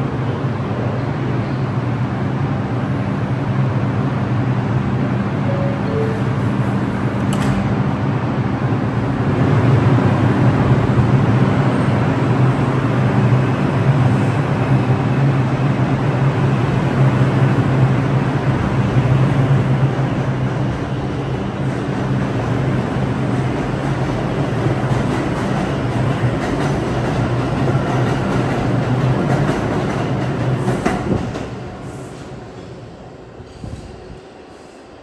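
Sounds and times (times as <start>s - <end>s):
subway train motors humming: 0.0s - 35.0s
train running noise: 0.0s - 35.0s
two-note door chime: 5.5s - 6.4s
train doors shutting click: 5.5s - 8.0s.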